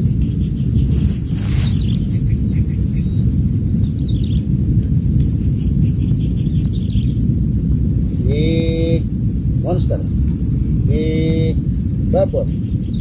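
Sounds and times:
high insect drone: 0.0s - 13.0s
small birds chirping: 0.0s - 13.0s
wind rumble on microphone: 0.0s - 13.0s.

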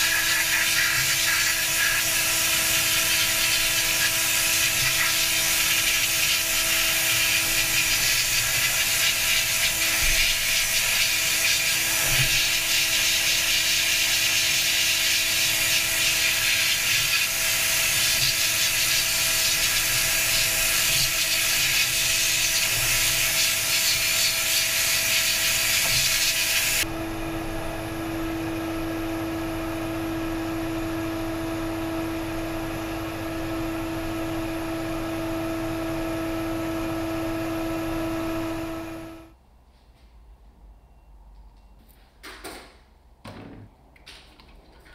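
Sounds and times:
harsh hissing working noise: 0.0s - 26.9s.

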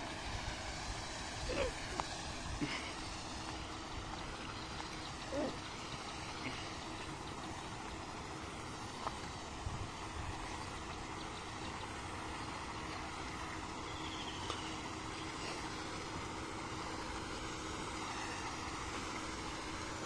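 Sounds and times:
aerator humming: 0.0s - 20.0s
churned water washing: 0.0s - 20.0s.

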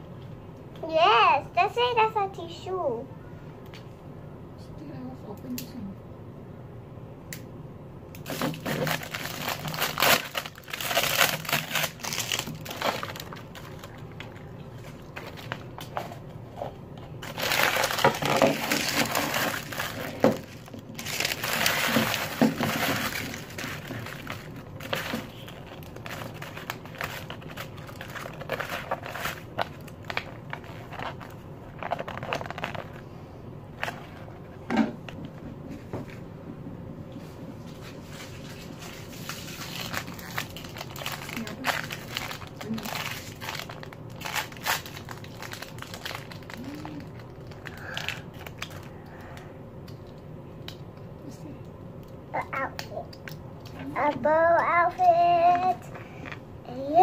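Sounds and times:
plastic and foil wrapping crackling: 8.2s - 33.0s, 37.7s - 49.4s.

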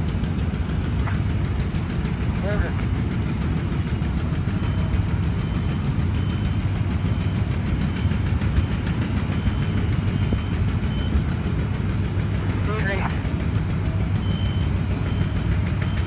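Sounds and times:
diesel crane engines rumbling: 0.0s - 16.0s.

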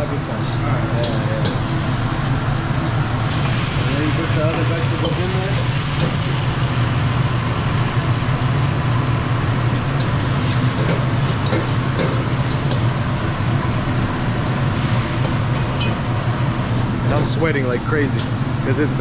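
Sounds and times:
gas burner rumbling: 0.0s - 19.0s
vegetables sizzling in a wok: 3.2s - 17.2s.

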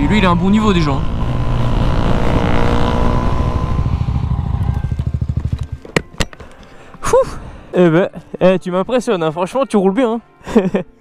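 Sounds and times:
motorcycle engine decelerating: 0.0s - 6.0s.

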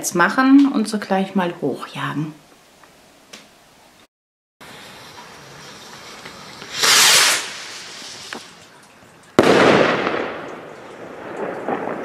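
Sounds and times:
firework rocket whoosh: 4.6s - 8.6s
firework bang with echo: 9.4s - 12.0s.

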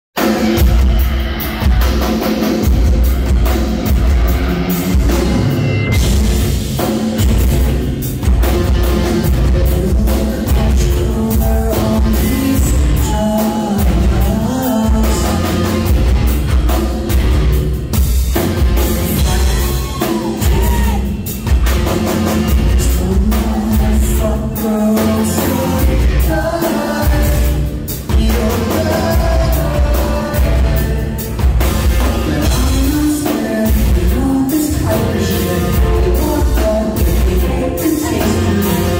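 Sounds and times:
bass guitar: 0.2s - 38.9s
drum kit beat: 0.2s - 38.9s
electric guitars: 0.2s - 38.9s
man singing: 8.4s - 16.4s, 18.6s - 21.4s, 22.0s - 38.9s.

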